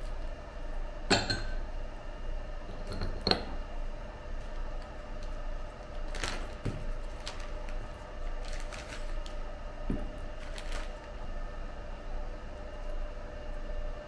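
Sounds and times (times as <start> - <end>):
steady hum: 0.0 - 14.0
plastic bags crinkling: 5.9 - 9.4, 10.1 - 11.2.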